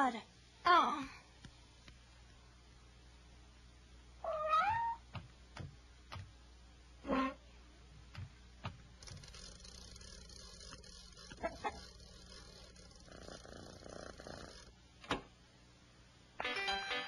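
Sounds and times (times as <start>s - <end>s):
gramophone crank winding rasp: 9.0s - 14.7s.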